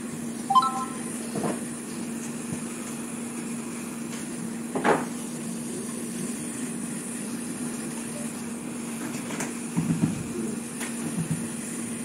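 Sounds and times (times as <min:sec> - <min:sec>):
faint high whine: 0:00.5 - 0:01.1.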